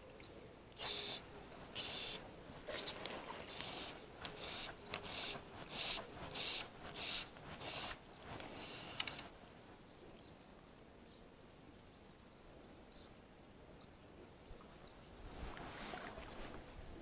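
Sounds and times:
riverside ambience: 0.7s - 9.6s
high bird chirps: 0.8s - 9.3s
rustling with sharp click: 1.8s - 9.4s.

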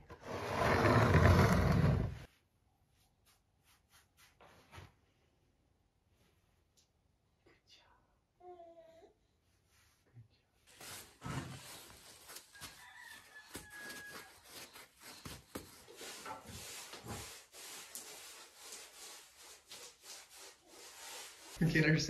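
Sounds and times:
paint brushes scrubbing wall: 2.9s - 4.8s, 10.7s - 22.0s.

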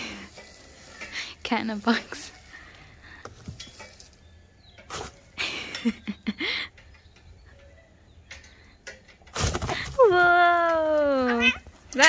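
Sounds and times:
cats calling: 10.9s - 12.0s.

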